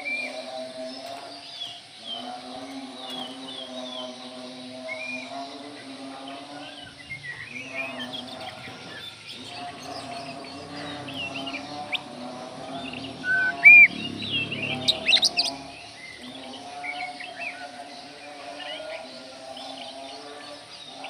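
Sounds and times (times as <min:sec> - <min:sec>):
steady low drone: 0:07.2 - 0:16.6
songbird whistling and chirping: 0:12.8 - 0:16.2.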